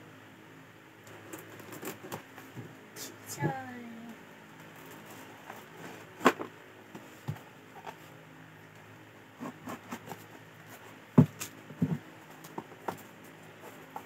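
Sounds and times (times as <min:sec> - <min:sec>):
hands tapping cardboard box: 0:11.2 - 0:13.1.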